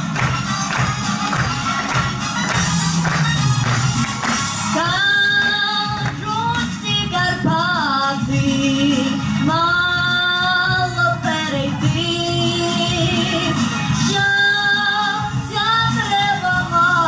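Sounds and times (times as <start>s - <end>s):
girl singing folk song: 4.8s - 17.0s.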